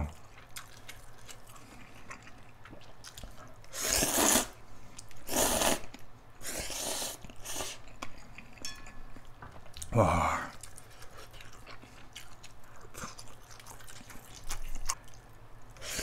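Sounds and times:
person slurping noodles: 3.7s - 4.6s, 5.2s - 7.8s.

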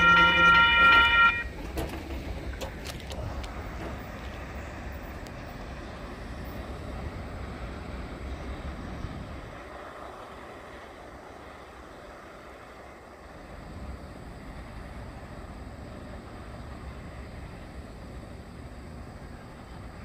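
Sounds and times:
crossing warning bell ringing: 0.0s - 1.7s
train low rumble: 0.0s - 20.0s.

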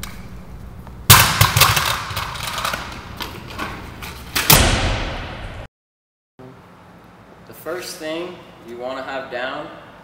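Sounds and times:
scooter wheels rolling and clattering: 1.5s - 4.4s.

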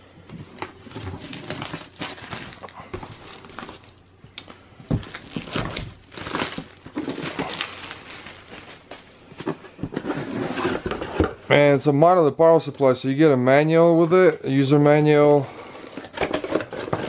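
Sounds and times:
plastic shrink wrap crinkling: 0.4s - 9.3s.

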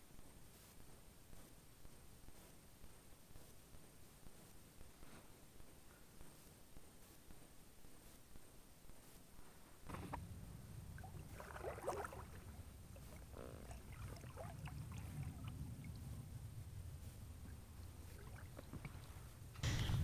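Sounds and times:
steady low rumble: 9.8s - 20.0s
paddle splashing and dripping water: 11.0s - 16.2s, 17.4s - 19.1s.

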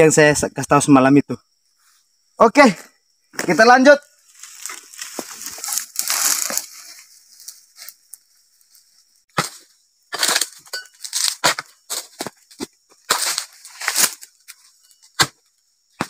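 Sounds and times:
crunching of dry fronds: 3.4s - 15.3s.

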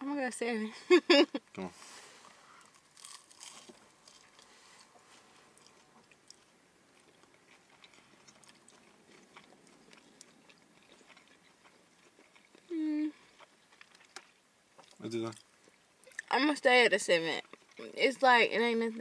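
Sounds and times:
chewing soft crunches: 2.2s - 16.3s, 17.4s - 17.9s.

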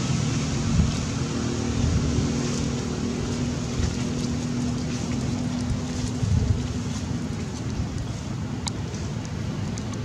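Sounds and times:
motor rumbling and humming: 0.0s - 10.0s
faint light ticks: 7.6s - 10.0s.

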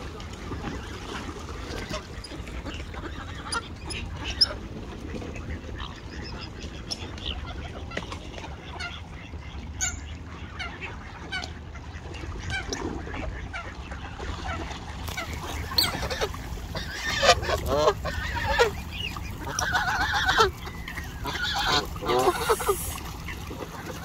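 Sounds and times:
geese honking: 8.6s - 24.0s
steady low rumble: 14.9s - 24.0s.

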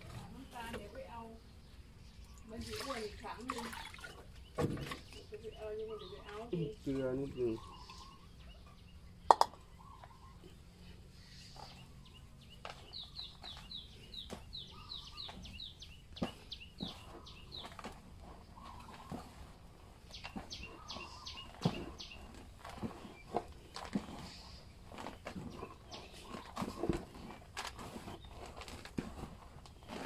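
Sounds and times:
small bird chirping: 3.8s - 28.8s
hands mixing damp feed: 10.5s - 30.0s.

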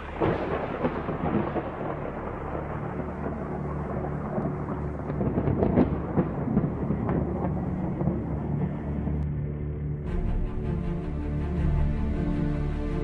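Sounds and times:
rolling thunder with sharp cracks: 0.0s - 8.8s.

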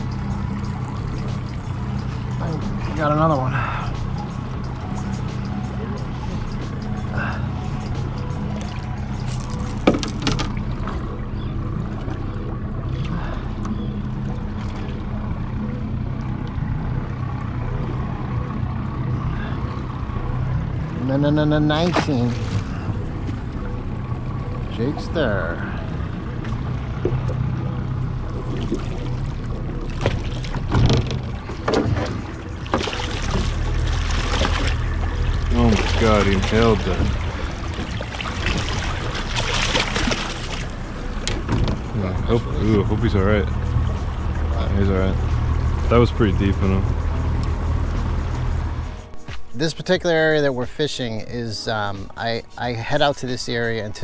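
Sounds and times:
boat motor humming: 0.0s - 54.0s
wind and water rumble: 0.0s - 54.0s
sharp knocks: 9.8s - 10.6s.

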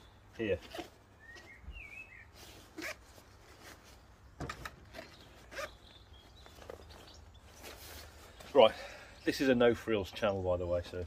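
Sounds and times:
bird chirping: 0.0s - 3.0s, 3.6s - 10.9s
zip clicks: 2.7s - 3.1s, 4.9s - 5.8s.

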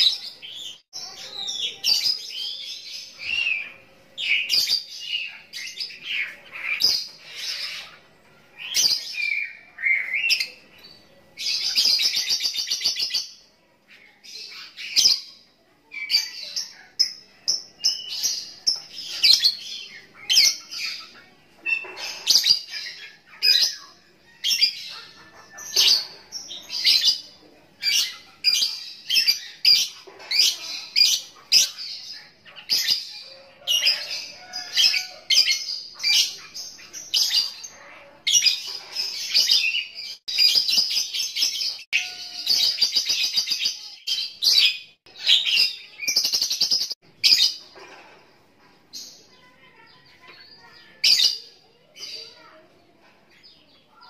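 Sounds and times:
lovebird chirping and trilling: 24.5s - 47.7s.

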